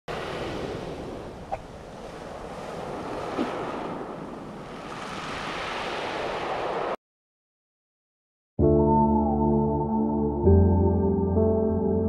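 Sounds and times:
waves washing over pebbles: 0:00.1 - 0:07.0.

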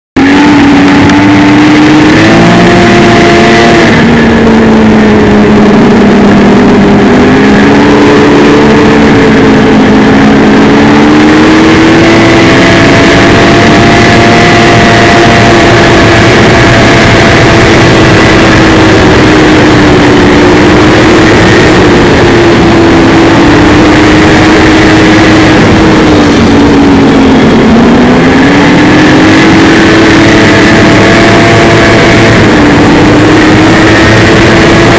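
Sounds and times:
snowmobile engine revving: 0:00.2 - 0:34.9.

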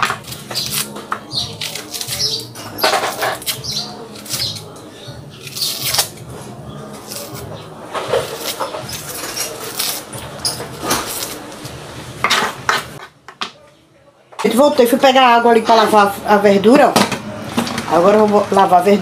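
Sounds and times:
bulb skin crackling and rustling: 0:05.4 - 0:11.6.

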